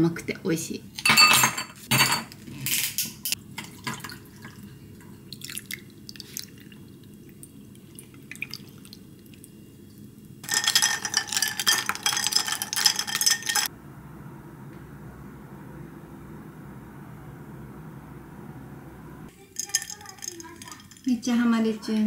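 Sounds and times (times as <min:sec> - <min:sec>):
liquid pouring over ice: 0:03.7 - 0:09.5, 0:10.4 - 0:13.7, 0:19.4 - 0:21.1
ice rattling in glass: 0:10.4 - 0:13.7, 0:19.4 - 0:21.2.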